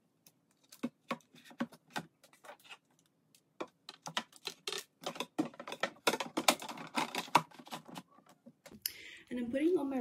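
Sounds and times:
plastic trays clicking and tapping: 0:03.6 - 0:08.7.

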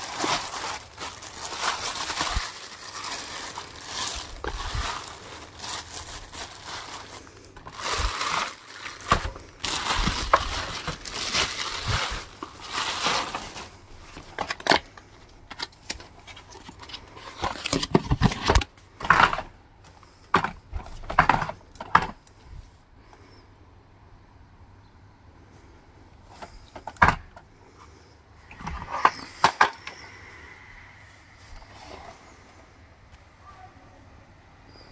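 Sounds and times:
plastic bag rustling: 0:00.0 - 0:22.2, 0:26.2 - 0:30.4.

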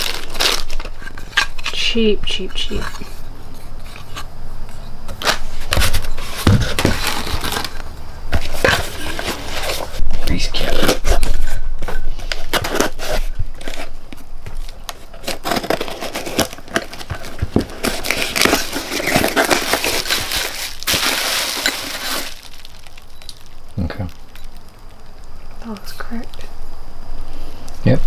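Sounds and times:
plastic and bubble wrap crinkling: 0:00.0 - 0:26.5
cardboard box opening: 0:05.1 - 0:07.8, 0:14.5 - 0:22.7.

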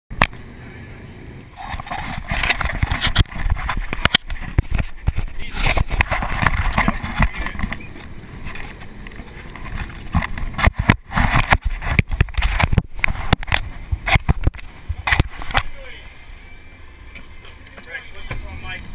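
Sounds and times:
wind buffeting: 0:01.2 - 0:16.0.

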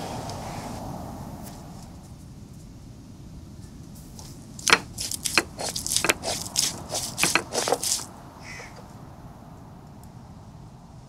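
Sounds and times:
stone roller knocking on stone: 0:04.6 - 0:08.0.

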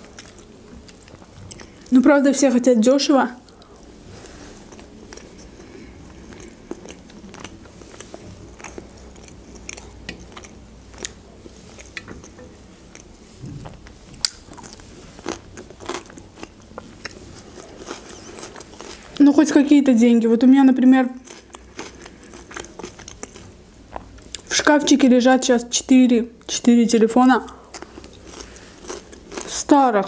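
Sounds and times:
wet chewing: 0:04.7 - 0:19.2, 0:21.2 - 0:24.5.

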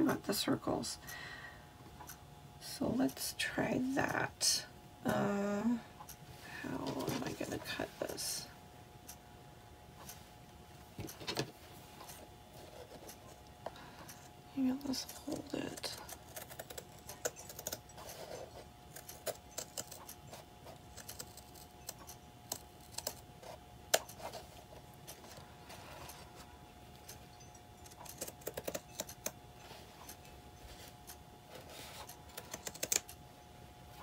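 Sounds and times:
scissors snipping fabric: 0:15.1 - 0:18.1, 0:18.9 - 0:23.2, 0:27.8 - 0:29.4.

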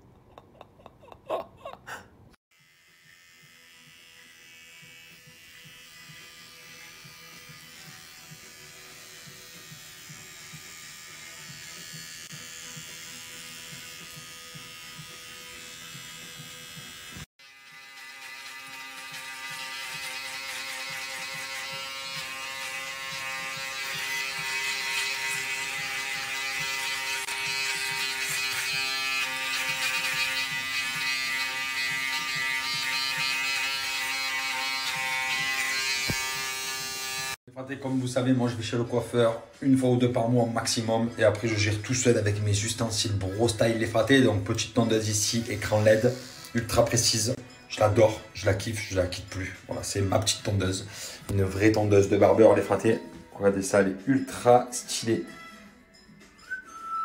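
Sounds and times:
beard trimmer buzzing: 0:02.6 - 0:37.4, 0:45.3 - 0:46.8.

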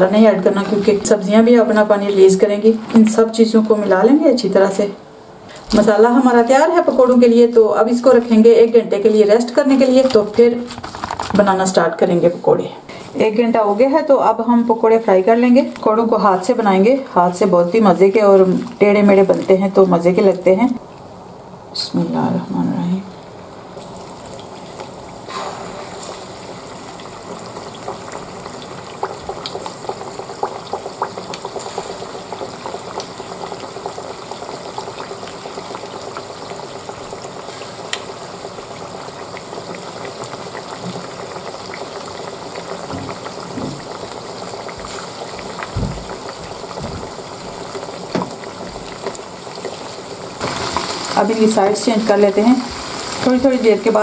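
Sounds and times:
pakoras sizzling in hot oil: 0:00.0 - 0:21.5, 0:23.2 - 0:54.0.

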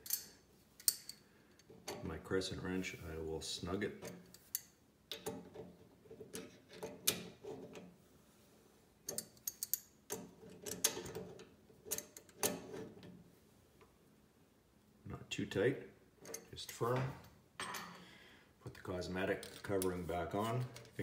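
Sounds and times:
wrench clicking and scraping on metal: 0:00.0 - 0:02.0, 0:04.0 - 0:07.9, 0:09.0 - 0:13.1, 0:16.2 - 0:17.0.

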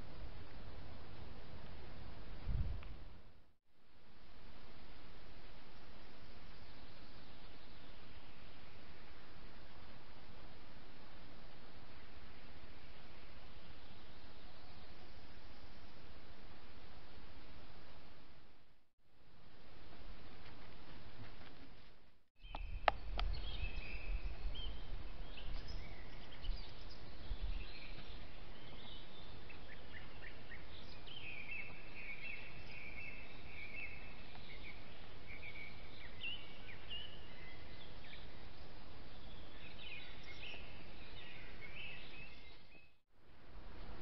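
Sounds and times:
small birds singing and chirping: 0:06.2 - 0:09.2, 0:11.9 - 0:15.9, 0:22.4 - 0:43.0.

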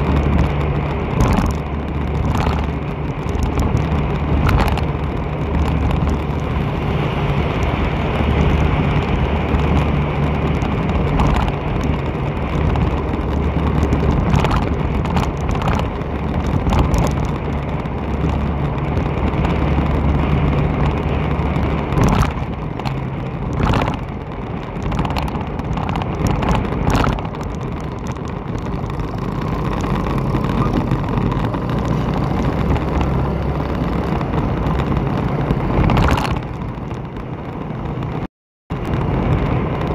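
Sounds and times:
road and wind noise: 0:00.0 - 0:39.9
vehicle engine cruising: 0:00.0 - 0:39.9.

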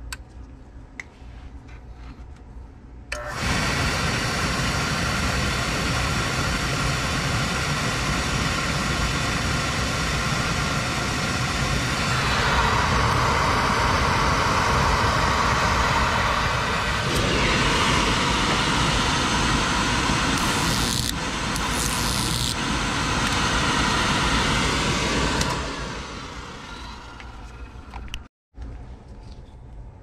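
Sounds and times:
oil burner motor whirring: 0:03.1 - 0:28.3
igniter spark hissing: 0:03.7 - 0:26.2.

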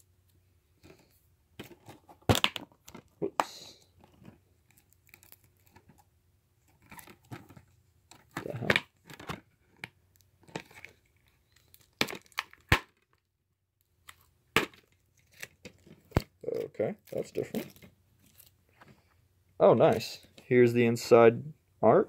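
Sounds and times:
plastic wrap tearing and crinkling: 0:04.7 - 0:05.8, 0:10.4 - 0:13.2, 0:14.0 - 0:18.6.

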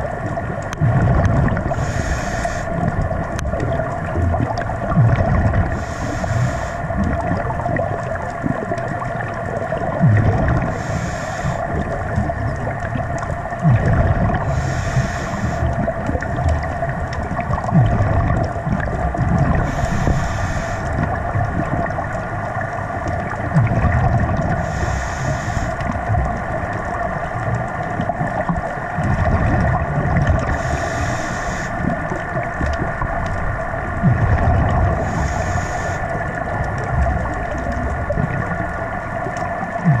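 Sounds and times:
bubbling of exhaled air: 0:00.0 - 0:40.0
steady droning hum: 0:00.0 - 0:40.0
regulator inhalation hiss: 0:01.7 - 0:02.8, 0:05.7 - 0:06.8, 0:10.6 - 0:11.7, 0:14.5 - 0:15.7, 0:19.6 - 0:21.0, 0:24.6 - 0:25.8, 0:30.5 - 0:31.8, 0:35.0 - 0:36.1.

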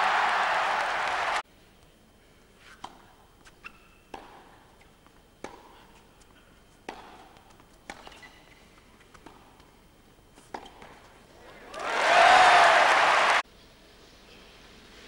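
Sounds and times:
crowd applause: 0:00.0 - 0:01.4, 0:11.5 - 0:13.4
tennis balls struck and bouncing: 0:02.8 - 0:12.0
shoe squeaks: 0:03.5 - 0:04.1, 0:08.0 - 0:08.8.

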